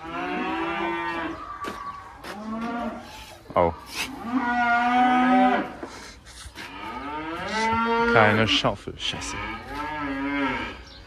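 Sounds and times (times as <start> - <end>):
cattle mooing: 0.0 - 1.4, 4.1 - 5.8, 6.6 - 10.9.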